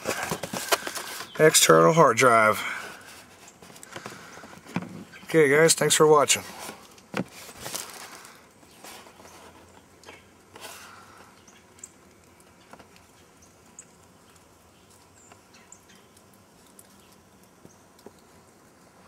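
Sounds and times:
cardboard box handling: 0.0s - 1.4s, 6.5s - 8.2s
small ticks: 10.9s - 18.9s.

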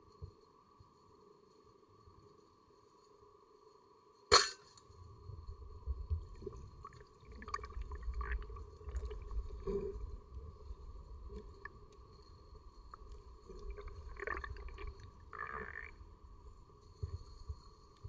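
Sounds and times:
low rumbling water: 5.2s - 18.0s.

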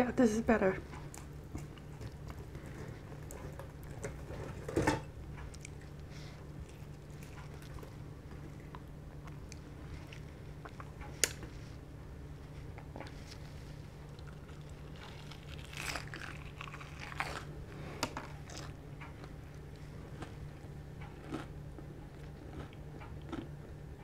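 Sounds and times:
steady low hum: 0.0s - 24.0s
fried chicken tearing apart: 14.5s - 17.5s.

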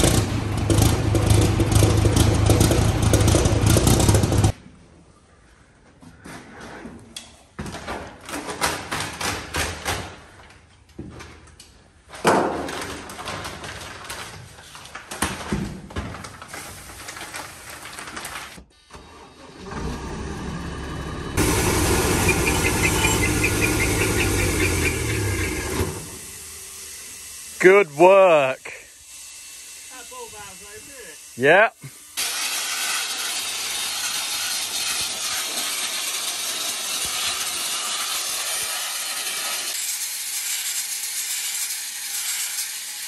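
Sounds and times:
tractor diesel engine running: 0.0s - 4.5s, 19.1s - 28.5s.

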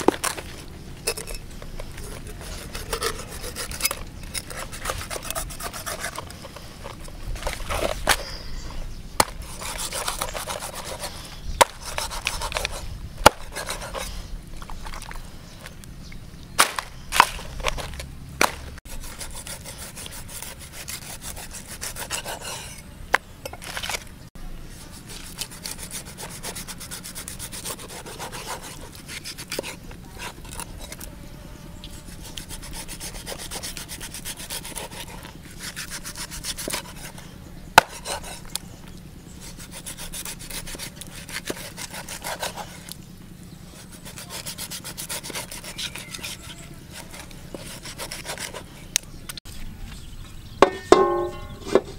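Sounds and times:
cleaver scraping fish skin: 0.0s - 8.5s, 9.2s - 15.8s, 16.6s - 24.1s, 24.8s - 31.2s, 31.9s - 43.0s, 43.7s - 49.4s.

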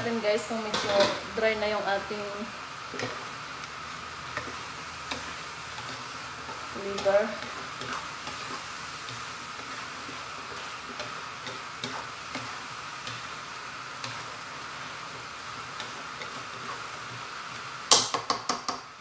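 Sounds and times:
food sizzling in a pan: 0.0s - 19.0s
utensil clattering on pan: 17.9s - 18.8s.

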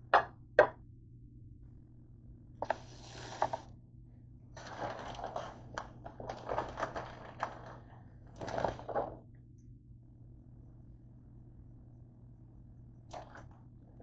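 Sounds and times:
packaging crinkling and rustling: 2.6s - 3.7s, 4.6s - 9.2s.

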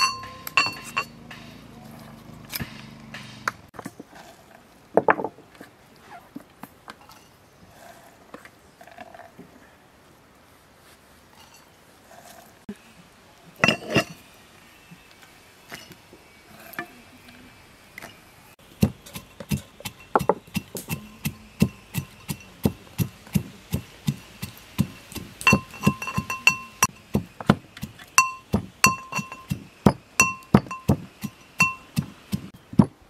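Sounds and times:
metal pestle pounding in mortar: 18.8s - 33.0s.

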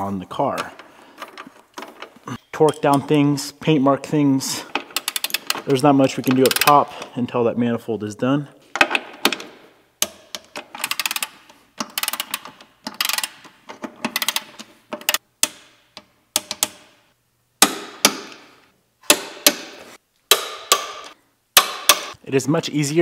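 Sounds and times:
ratchet wrench clicking: 5.0s - 5.6s, 10.8s - 13.4s, 14.1s - 15.2s.

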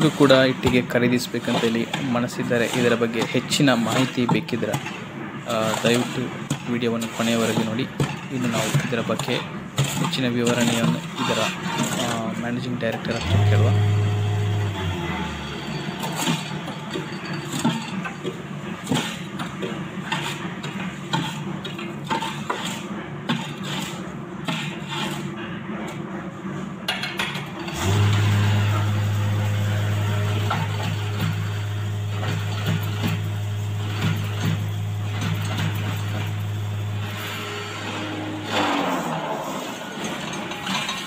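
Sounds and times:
metal rod scraping concrete: 0.1s - 12.4s, 13.1s - 17.7s, 20.0s - 25.3s, 27.7s - 41.0s
vibrator motor humming: 13.2s - 17.0s, 27.6s - 40.7s.

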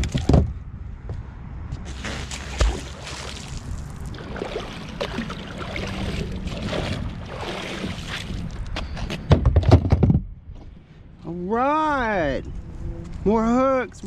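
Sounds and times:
water sloshing and splashing: 1.9s - 8.8s.

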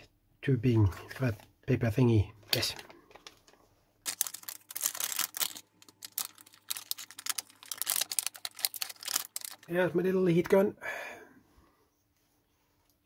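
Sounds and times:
plastic tube crinkling and clicking: 2.5s - 9.7s.

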